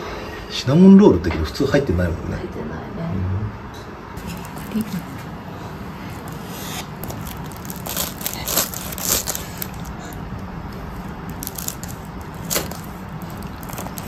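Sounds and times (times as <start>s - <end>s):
knife cutting crisp crust: 6.2s - 9.9s.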